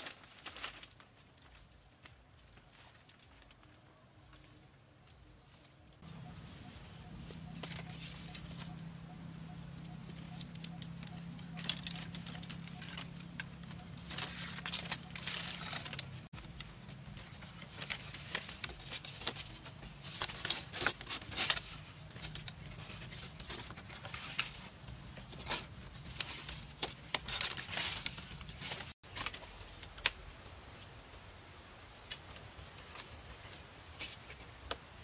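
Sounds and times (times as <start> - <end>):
bamboo poles clacking: 7.3 - 30.4.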